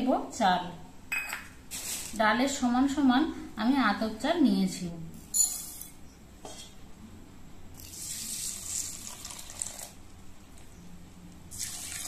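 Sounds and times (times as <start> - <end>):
water pouring into a bowl: 7.8 - 10.0, 11.5 - 12.0.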